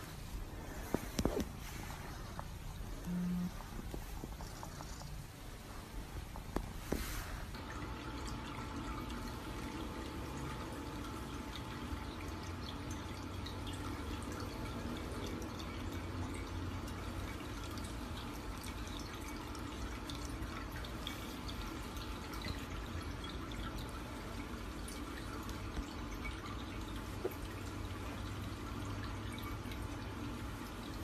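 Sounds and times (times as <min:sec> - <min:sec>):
steady low hum: 0:00.0 - 0:19.1
water dripping: 0:00.1 - 0:31.0.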